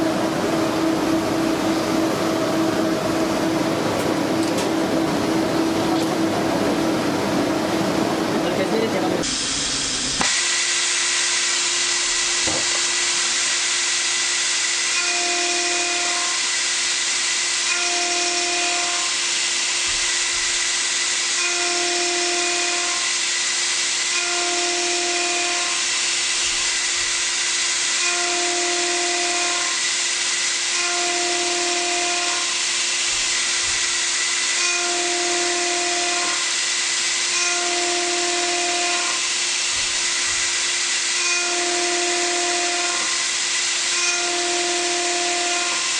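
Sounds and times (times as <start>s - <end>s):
machine hum: 0.0s - 45.9s
machining hiss: 8.3s - 30.8s.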